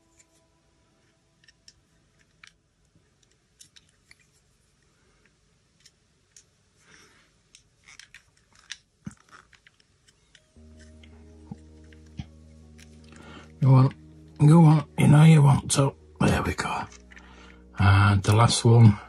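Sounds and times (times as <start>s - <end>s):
clicks and scrapes of toy handling: 1.0s - 13.1s.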